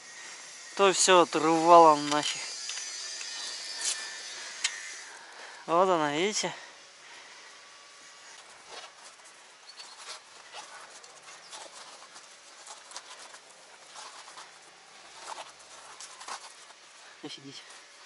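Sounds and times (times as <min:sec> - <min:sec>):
rubber tyre rubbing and rustling: 0:08.1 - 0:18.0.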